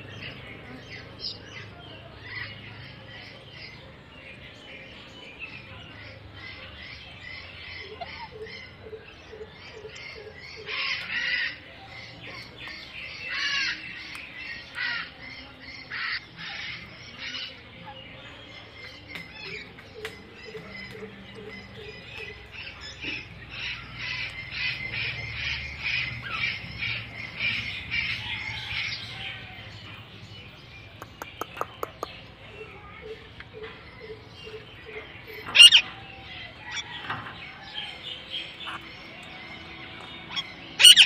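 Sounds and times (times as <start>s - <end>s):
parakeets squawking: 7.0s - 12.5s, 13.1s - 17.7s, 20.8s - 29.6s, 31.3s - 41.0s.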